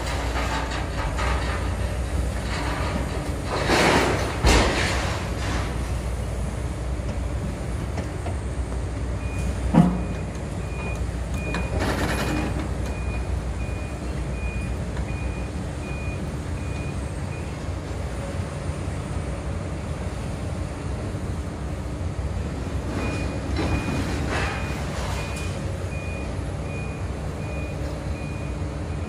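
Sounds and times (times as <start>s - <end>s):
diesel engine hum: 0.0s - 29.0s
debris crashing: 2.4s - 6.0s.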